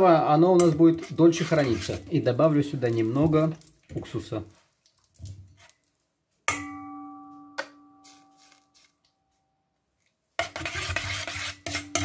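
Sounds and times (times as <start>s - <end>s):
spoon scraping metal bowl: 0.4s - 3.5s, 10.4s - 12.0s.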